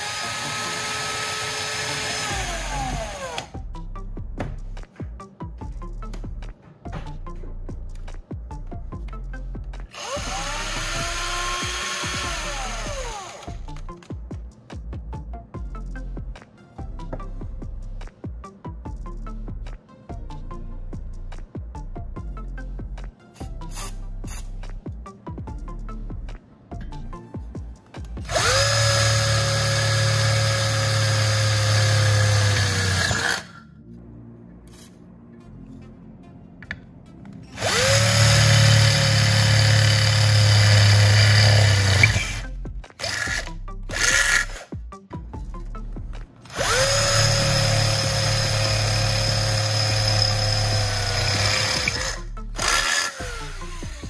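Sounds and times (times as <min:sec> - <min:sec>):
electric drill whining: 0:00.0 - 0:03.6, 0:09.9 - 0:13.6, 0:28.2 - 0:33.6, 0:37.6 - 0:44.7, 0:46.5 - 0:54.0.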